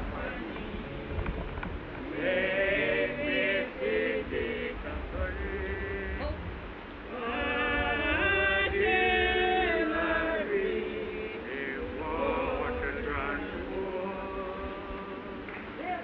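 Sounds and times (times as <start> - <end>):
low rumble: 0.0 - 9.9
voices singing slow chant: 0.0 - 16.0.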